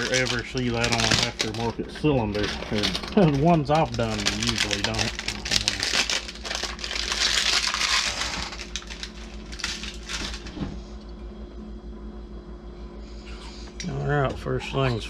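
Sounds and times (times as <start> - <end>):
packaging rustling: 0.0 - 10.6
steady low hum: 0.0 - 15.0.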